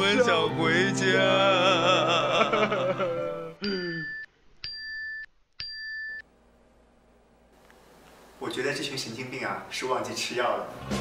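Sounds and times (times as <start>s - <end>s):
men wailing in song over music: 0.0s - 3.6s.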